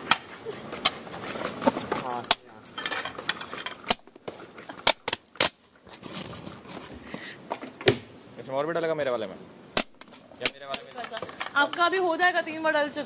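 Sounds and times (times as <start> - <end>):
soft scraping and rustling: 0.0 - 4.8, 5.6 - 7.4
spoons clinking against cups and bowls: 0.5 - 3.8.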